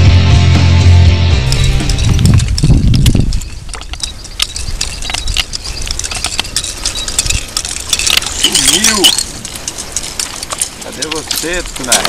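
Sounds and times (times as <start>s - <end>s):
rock music: 0.0s - 2.2s.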